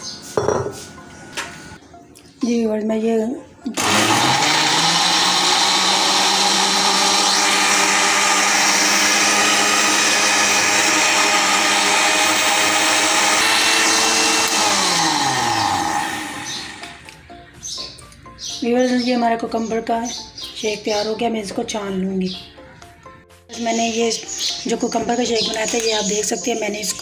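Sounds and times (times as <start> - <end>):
blender motor whining: 3.8 - 17.0.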